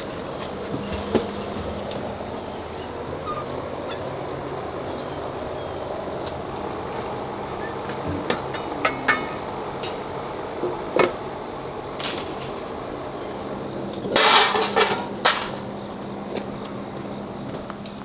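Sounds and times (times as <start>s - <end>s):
metal bowls clinking and clanking: 8.2s - 10.0s, 14.1s - 15.6s.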